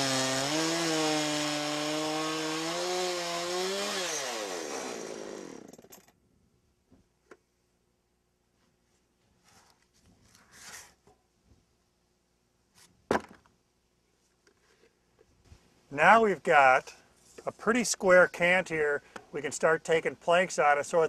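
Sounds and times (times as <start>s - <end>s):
chainsaw cutting log: 0.0s - 6.0s.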